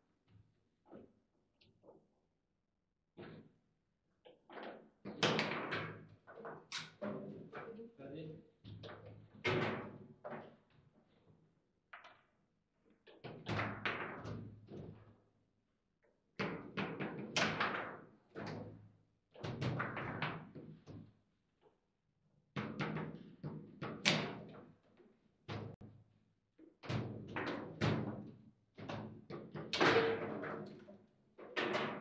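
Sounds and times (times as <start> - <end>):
foosball ball knocks and clacks: 4.6 - 7.0, 19.5 - 20.8, 27.0 - 30.8.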